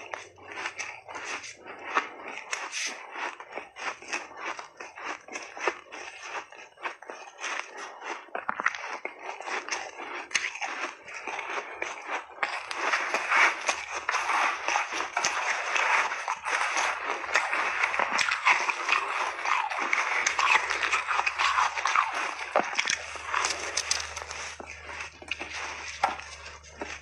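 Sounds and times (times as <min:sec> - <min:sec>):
shaved ice crunching: 0:09.5 - 0:27.0.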